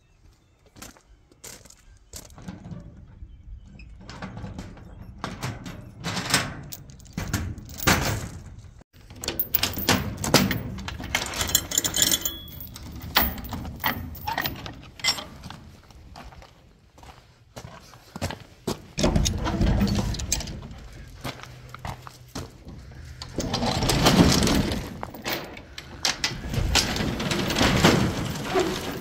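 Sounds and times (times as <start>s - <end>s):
chain clanking on sheet metal: 4.0s - 15.6s, 19.0s - 21.1s, 22.9s - 29.0s
chain and padlock rattling: 6.6s - 8.4s, 9.1s - 15.4s.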